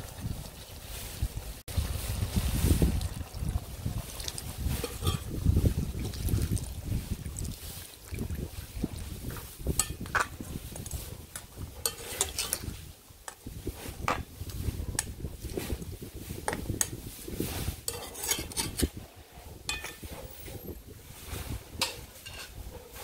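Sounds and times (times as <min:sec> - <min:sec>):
metal spoon scraping pot: 0:04.7 - 0:05.4, 0:09.3 - 0:15.1, 0:17.8 - 0:19.0, 0:19.6 - 0:20.6, 0:21.7 - 0:22.7.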